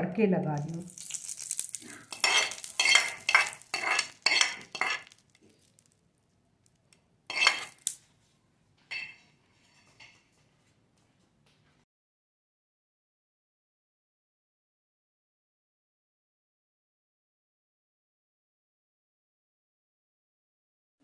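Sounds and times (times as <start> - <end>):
hot oil hissing: 0.9 - 5.2
spoon scraping and clinking on dishes: 0.9 - 5.6, 7.3 - 8.0, 8.9 - 10.4.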